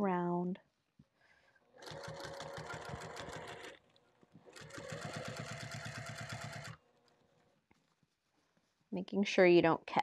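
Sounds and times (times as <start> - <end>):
sewing machine stitching: 1.7 - 7.4.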